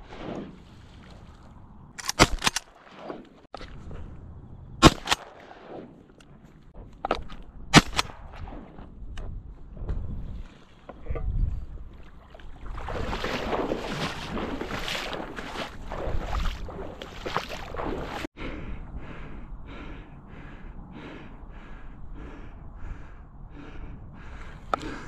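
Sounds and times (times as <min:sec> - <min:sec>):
marsh water sloshing and splashing: 0:00.0 - 0:04.1, 0:10.0 - 0:18.4
wind on microphone: 0:06.7 - 0:25.0.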